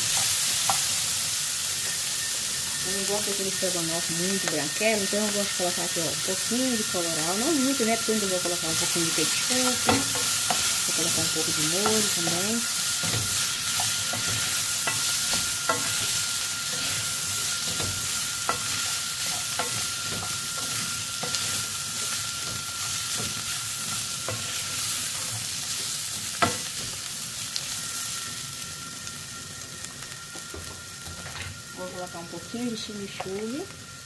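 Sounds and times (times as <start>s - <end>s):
chicken sizzling in a frying pan: 0.0s - 34.0s
wooden spoon scraping a pan: 8.4s - 26.6s.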